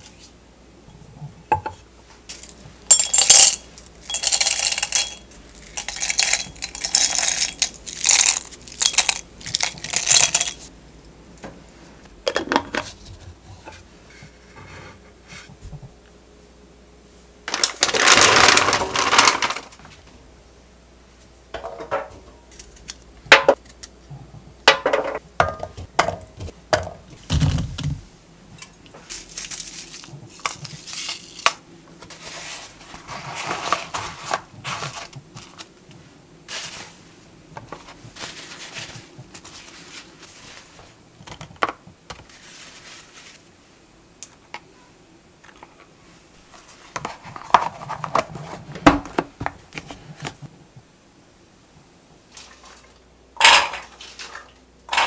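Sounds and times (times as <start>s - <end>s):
colander and dishes clinking: 2.4s - 10.6s
paper towel rustling: 32.0s - 41.0s, 42.2s - 43.6s.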